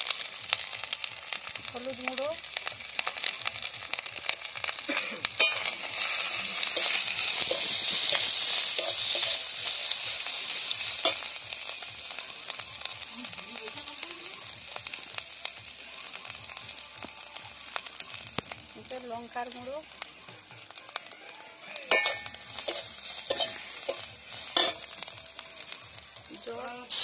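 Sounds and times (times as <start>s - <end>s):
onions sizzling in hot oil: 0.0s - 27.0s.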